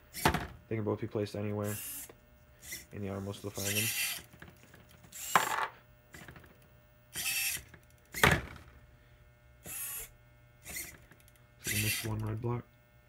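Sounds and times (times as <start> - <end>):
robotic arm whirring: 1.6 - 5.5, 6.1 - 8.6, 9.6 - 12.3.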